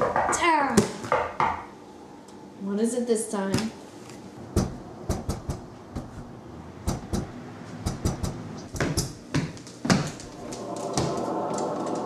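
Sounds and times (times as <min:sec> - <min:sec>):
sharp knocks and clicks: 0:06.9 - 0:10.1.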